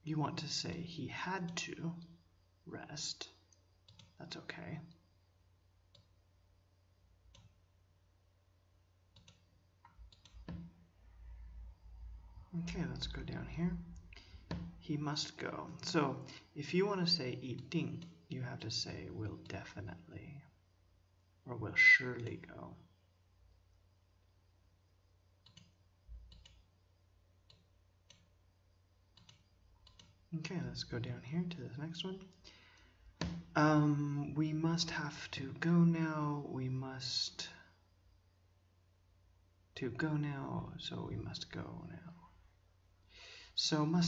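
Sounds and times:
computer mouse clicks: 3.5 - 4.2, 5.9 - 6.1, 7.3 - 7.6, 9.1 - 10.8, 17.6 - 18.2, 25.4 - 26.7, 27.4 - 28.3, 29.1 - 30.2.

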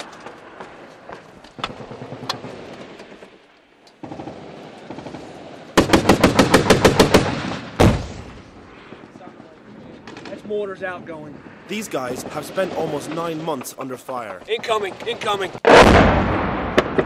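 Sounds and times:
scattered gunshots: 4.0 - 8.3, 14.5 - 17.0
automatic machine-gun fire: 5.8 - 7.7
heavy boom: 7.4 - 11.6, 15.6 - 17.0.

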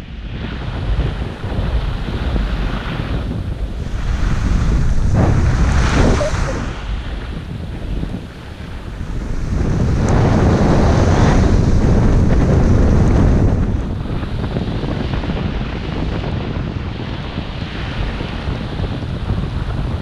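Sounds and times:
wind buffeting microphone: 0.0 - 20.0
skis hissing on snow: 3.8 - 6.8.

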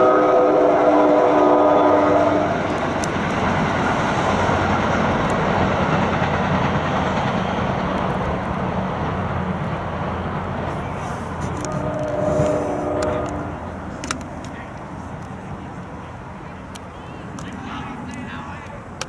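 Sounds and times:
train horn chord: 0.0 - 2.6, 11.6 - 13.7
train rumbling past: 0.0 - 19.0.

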